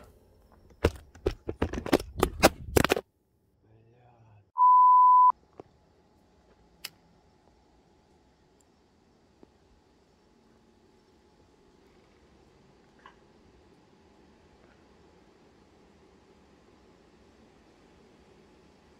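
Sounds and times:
high electronic beep: 4.6 - 5.3
click: 6.8 - 7.0.

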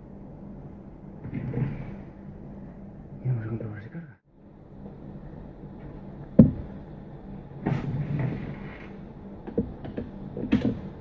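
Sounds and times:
faint low hum: 0.0 - 11.0
scraping and rustling on cardboard: 7.6 - 9.0.

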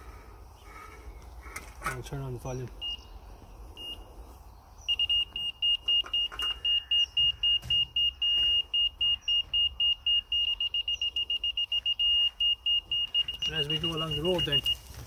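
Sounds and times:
laser receiver beeping: 4.9 - 14.8.

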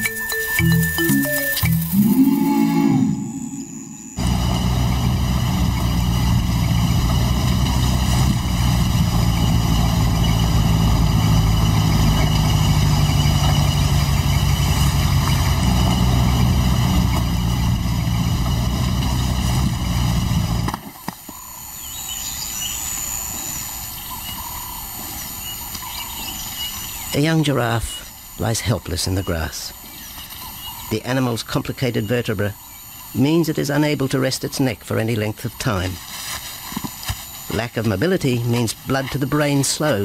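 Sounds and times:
outdoor background: 0.0 - 40.0
vehicle engine droning: 1.8 - 20.9.

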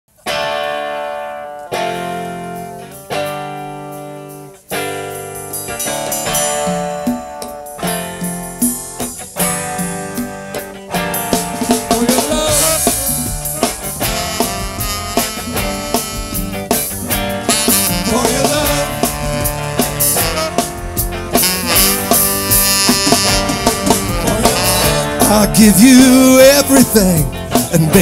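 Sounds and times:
electric guitar chords ringing: 0.1 - 28.0
drums and cymbals: 1.8 - 28.0
bass notes: 8.0 - 28.0.

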